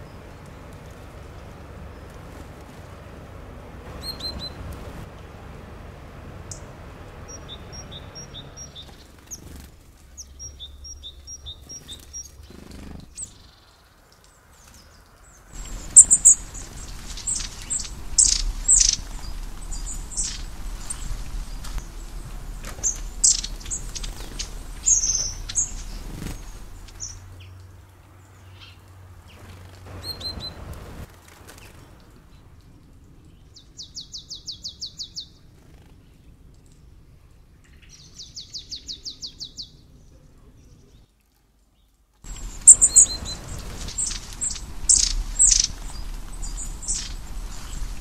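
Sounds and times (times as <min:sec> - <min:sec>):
songbirds chirping: 0:00.0 - 0:48.0
rapid bird trill: 0:03.9 - 0:04.6, 0:15.5 - 0:27.4, 0:42.3 - 0:48.0.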